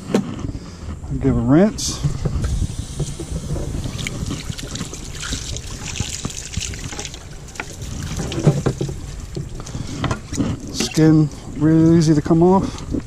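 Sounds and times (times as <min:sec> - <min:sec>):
running water trickling and splashing: 0:02.2 - 0:13.0
taps and splashes of handling: 0:03.9 - 0:11.2.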